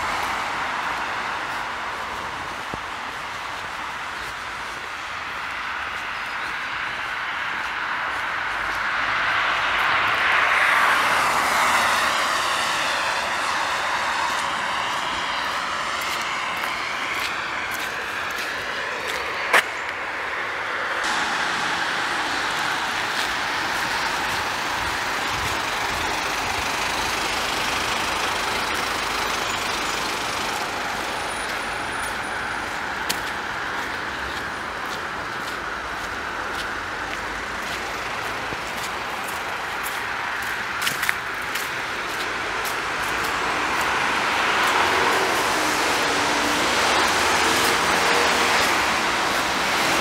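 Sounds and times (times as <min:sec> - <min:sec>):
road traffic rushing: 0:00.0 - 0:50.0
vehicle driving past: 0:08.1 - 0:19.6.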